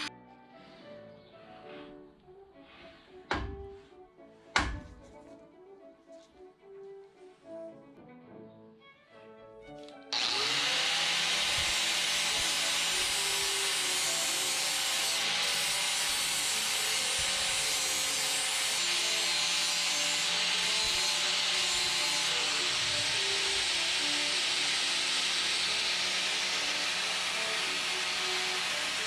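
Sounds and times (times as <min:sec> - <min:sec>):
angle grinder grinding metal: 0:10.1 - 0:29.0.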